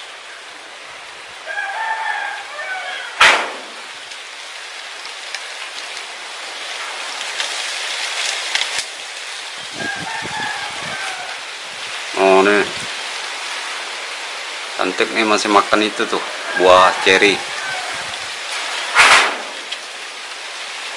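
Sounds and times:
steady background hiss: 0.0s - 20.9s
distant rooster crowing: 1.4s - 3.9s, 9.8s - 11.6s, 15.7s - 18.4s
sharp knock: 3.2s - 3.8s, 18.9s - 19.6s.

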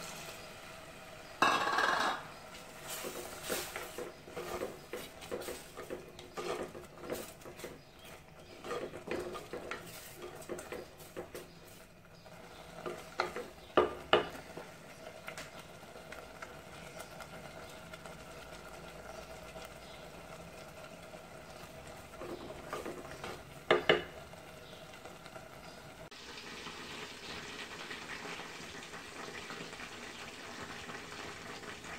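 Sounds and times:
crackling bubbling hiss: 0.0s - 31.9s
curry bubbling: 1.4s - 31.9s.

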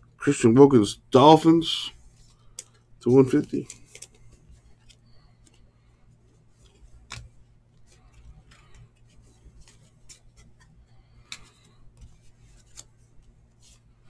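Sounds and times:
low steady hum: 0.0s - 14.0s
trading cards clicking and tapping: 2.3s - 5.6s, 6.5s - 13.8s.

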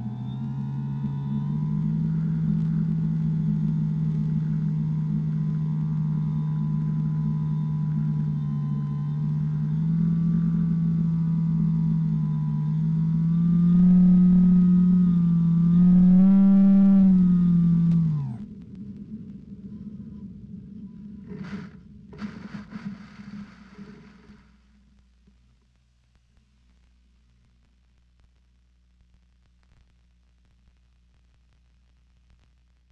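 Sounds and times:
model airplane motor drone: 0.0s - 18.5s.

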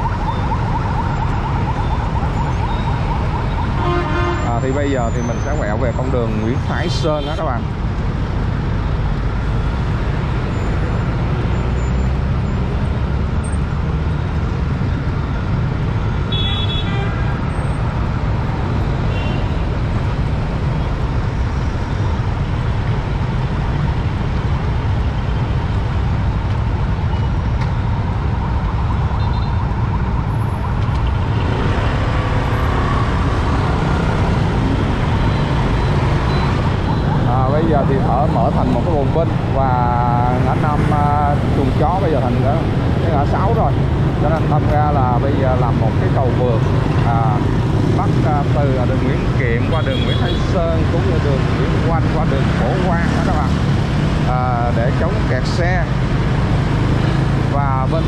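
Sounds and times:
busy road traffic rumble: 0.0s - 58.0s
motorbikes: 0.0s - 58.0s.

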